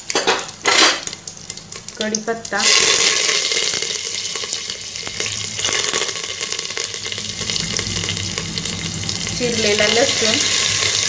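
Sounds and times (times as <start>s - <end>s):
oil crackling and popping: 0.0s - 11.0s
spices sizzling in hot oil: 0.0s - 11.0s.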